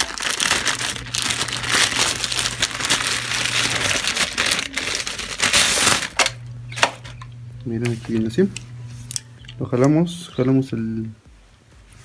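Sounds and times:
plastic bag crinkling: 0.0 - 6.4.

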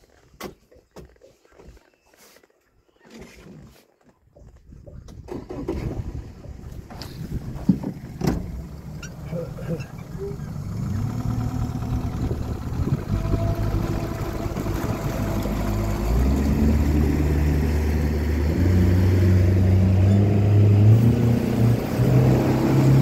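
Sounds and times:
outboard motor accelerating: 5.3 - 23.0
water rushing past hull: 12.2 - 20.0.

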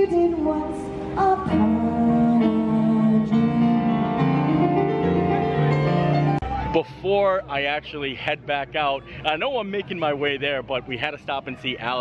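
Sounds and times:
live music held notes and chords: 0.0 - 6.8.

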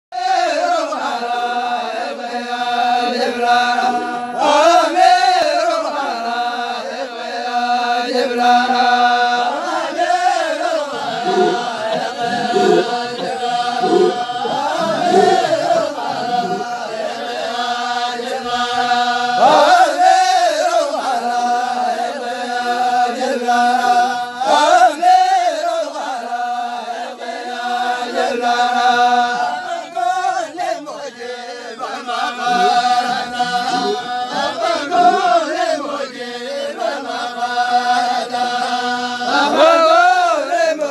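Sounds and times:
group of voices chanting: 9.4 - 29.8, 31.8 - 40.5.

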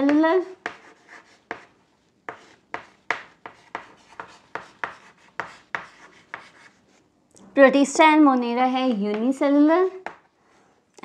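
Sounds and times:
chalk writing on chalkboard: 0.1 - 7.0.

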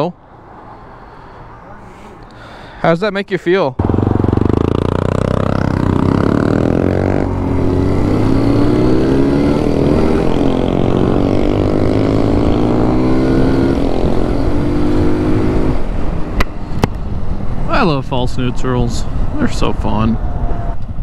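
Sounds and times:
motorcycle engine accelerating: 3.8 - 17.4.

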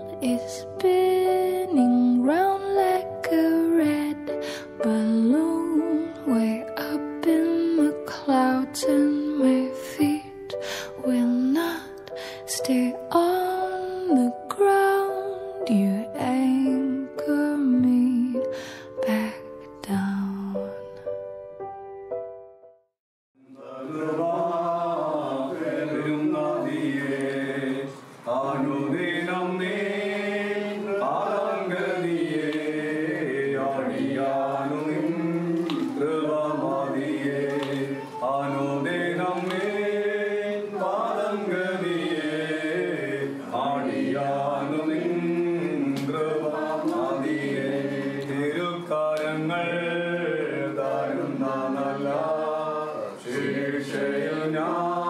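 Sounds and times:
voices chanting a hymn: 23.4 - 55.0.

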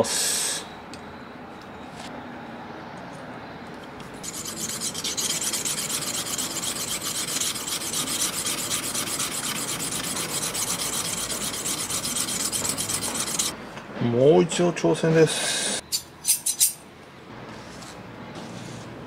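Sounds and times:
blade scraping on whetstone: 4.2 - 13.5.

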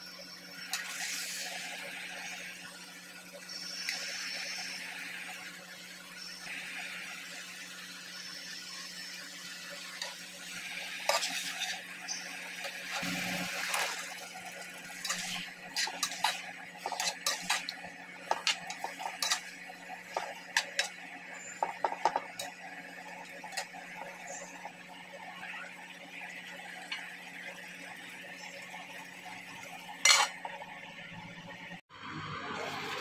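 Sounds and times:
spatula scraping frying pan: 11.0 - 22.5, 30.0 - 30.4.

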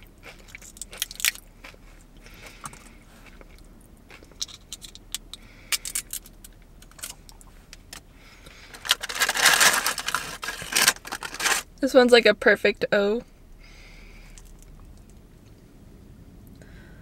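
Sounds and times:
chewing crunchy food: 0.0 - 7.9.

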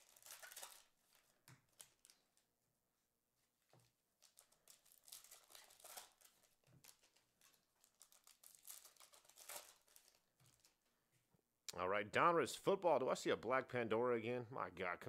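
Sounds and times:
foil wrapper crinkling and tearing: 0.0 - 2.4, 4.2 - 10.8.

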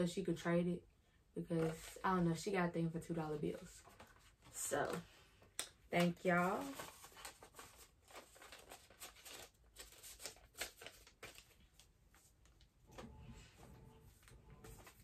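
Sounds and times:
paper rustling and crinkling: 1.6 - 2.1, 3.4 - 5.1, 5.9 - 15.0.

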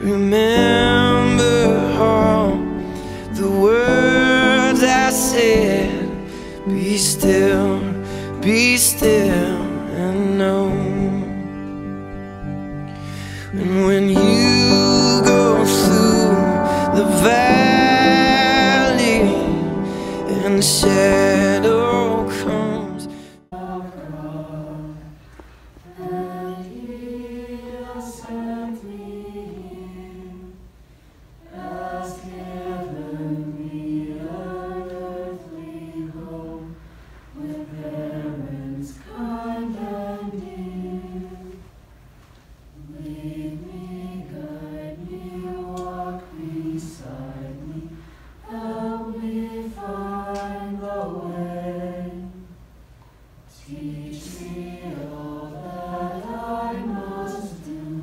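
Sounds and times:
children and adults singing: 0.0 - 2.7, 13.6 - 25.2, 25.8 - 30.6, 31.4 - 36.8, 37.4 - 41.7, 42.8 - 52.6, 53.5 - 58.0.

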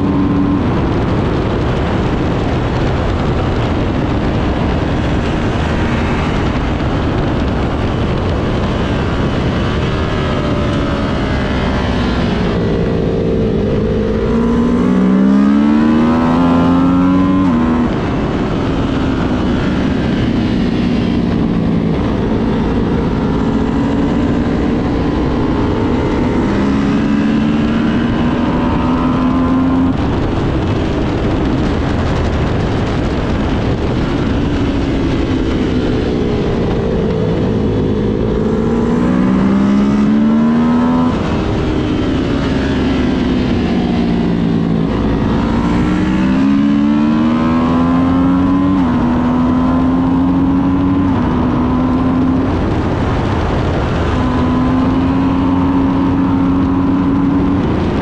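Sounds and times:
motorcycle engine revving: 0.0 - 58.0
wind rush: 0.0 - 58.0.

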